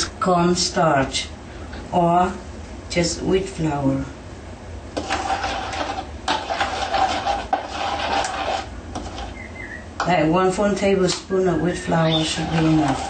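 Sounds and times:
utensil scraping ceramic bowl: 5.0 - 10.1, 11.7 - 13.0.

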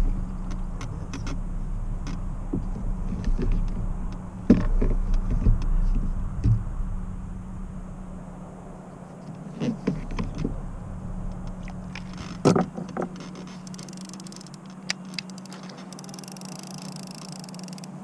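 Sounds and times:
steady low hum: 0.0 - 18.0
fishing rod and tackle rattling: 11.3 - 18.0.

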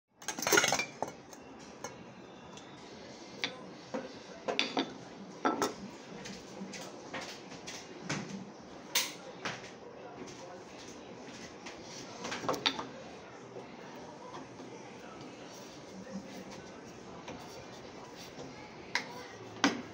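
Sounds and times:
kitchen utensils clattering: 0.2 - 2.0.

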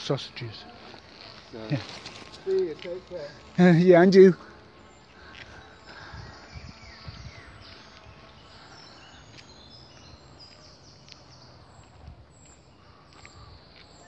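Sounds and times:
faint outdoor hiss: 0.0 - 14.0
birds chirping and whistling: 4.4 - 14.0.

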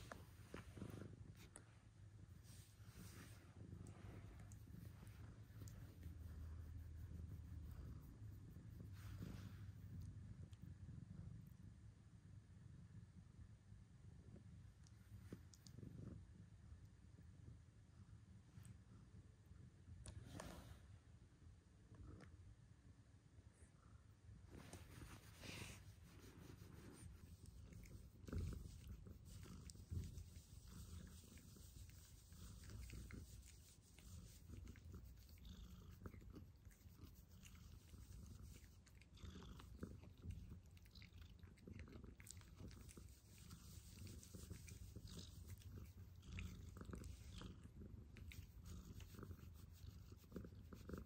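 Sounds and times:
cat purring: 0.0 - 20.8, 23.6 - 51.0
hands rustling fur: 2.4 - 9.9, 24.5 - 38.8, 42.5 - 47.4.

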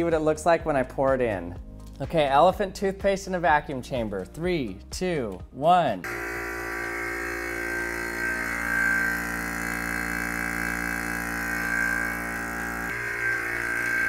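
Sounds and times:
vacuum pump humming: 6.1 - 14.0.

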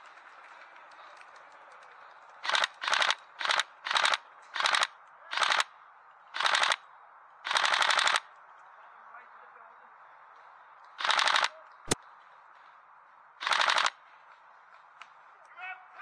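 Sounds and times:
airsoft rifle full-auto bursts: 2.4 - 5.6, 6.4 - 6.8, 7.5 - 8.2, 11.0 - 11.5, 13.4 - 14.0.

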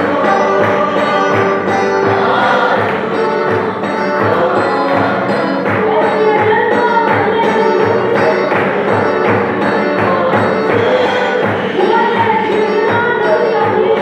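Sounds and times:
congregation singing: 0.0 - 14.0
drum beating steady rhythm: 0.0 - 14.0.

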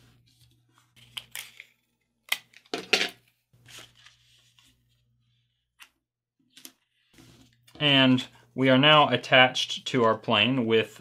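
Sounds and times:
paper crinkling and rustling: 3.6 - 4.9.

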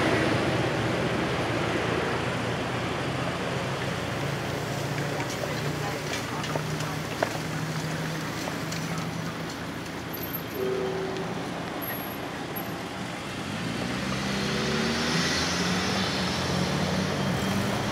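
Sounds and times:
tyre and road noise: 0.0 - 17.9
cars accelerating: 3.8 - 17.9.

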